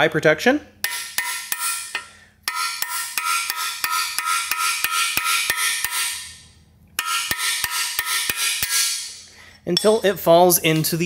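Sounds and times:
hammer striking steel punch: 0.8 - 6.4, 7.0 - 10.0.

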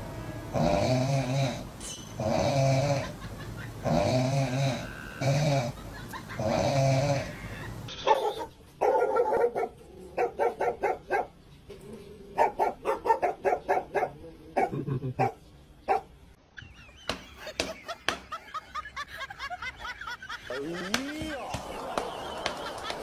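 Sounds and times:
dog snoring: 0.5 - 3.1, 3.8 - 5.8, 6.4 - 7.4
dog barking: 8.0 - 11.4, 12.4 - 16.1.

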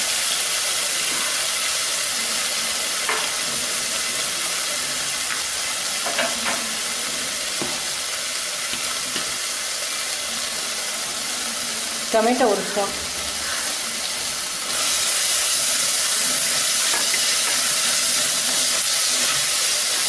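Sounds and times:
vegetables sizzling in oil: 0.0 - 20.0.

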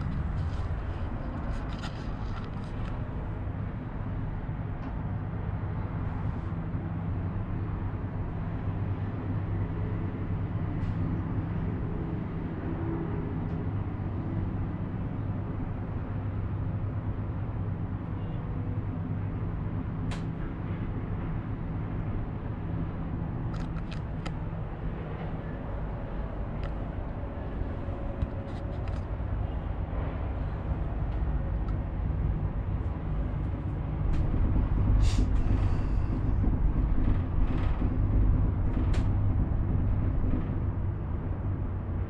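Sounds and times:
cable car hum and rumble: 0.0 - 42.0.

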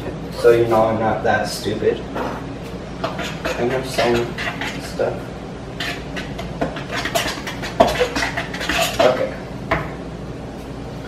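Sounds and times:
utensil clinking against mixing bowl: 3.0 - 5.0, 5.8 - 9.4.

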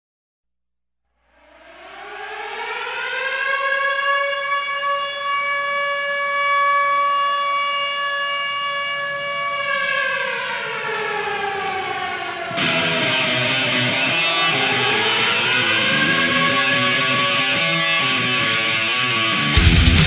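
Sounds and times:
siren wailing: 1.2 - 20.0
guitar music: 12.5 - 20.0.

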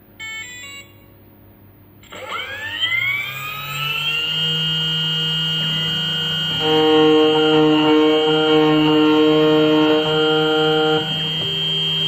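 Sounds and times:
motor spinning up with whine: 2.0 - 12.0.

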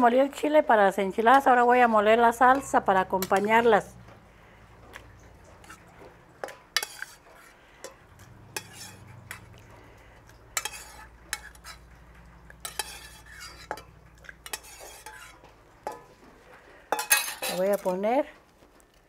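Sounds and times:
metal spoon clinking on pot and jar: 2.3 - 3.8, 7.8 - 9.5, 10.6 - 11.8, 12.5 - 16.2, 16.9 - 18.0.

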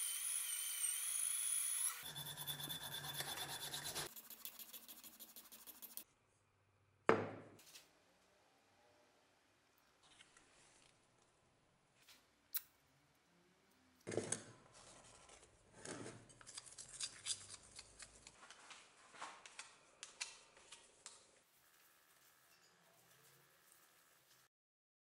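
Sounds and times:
stick scraping ceramic bowl: 2.0 - 6.0.

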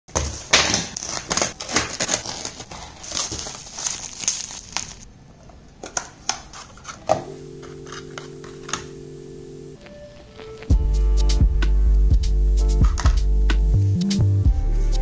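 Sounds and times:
bubble wrap crinkling: 0.1 - 5.1, 9.8 - 10.8
steady held musical notes: 7.2 - 15.0.

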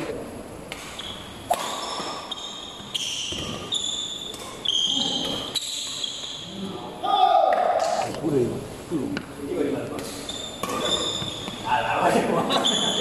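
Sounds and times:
rackets hitting shuttlecock: 0.7 - 6.4, 9.9 - 11.6
sneakers squeaking on court floor: 0.9 - 6.6, 10.0 - 11.8, 12.5 - 13.0.

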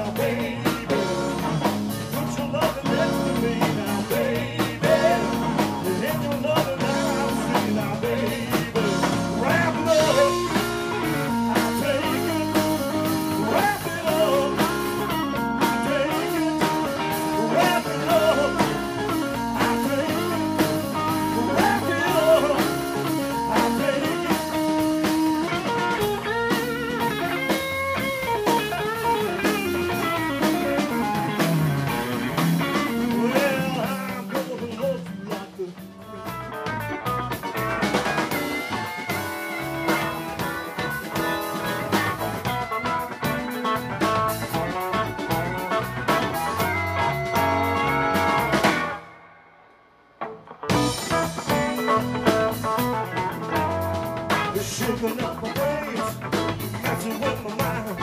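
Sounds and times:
electric bass: 0.0 - 49.2, 50.2 - 58.0
drum kit: 0.0 - 58.0
electric guitar: 0.0 - 58.0.

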